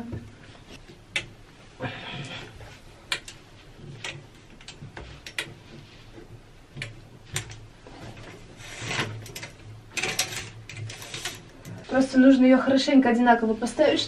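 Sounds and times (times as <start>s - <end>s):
plastic curtain rustling: 7.2s - 12.0s
curtain hooks clicking on rod: 8.7s - 11.8s.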